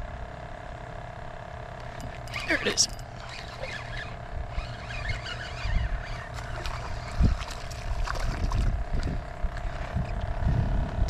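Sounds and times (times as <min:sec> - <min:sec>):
steady hum: 0:00.0 - 0:11.0
wind rumble on microphone: 0:04.2 - 0:11.0.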